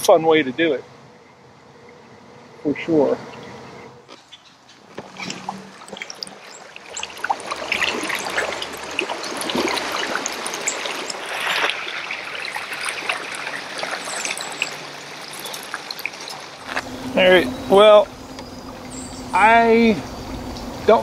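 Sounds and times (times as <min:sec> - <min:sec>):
river current running and trickling: 0:00.0 - 0:21.0
small splashes and drips: 0:04.9 - 0:16.7.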